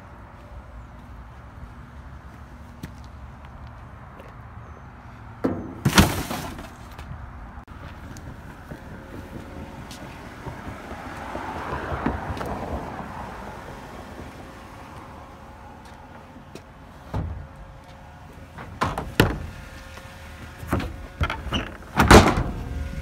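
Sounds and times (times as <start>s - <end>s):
vehicle passing: 6.9s - 18.6s.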